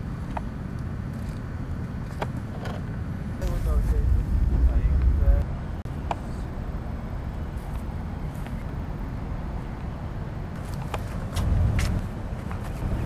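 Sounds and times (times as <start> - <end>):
low rumbling noise: 3.2 - 10.6.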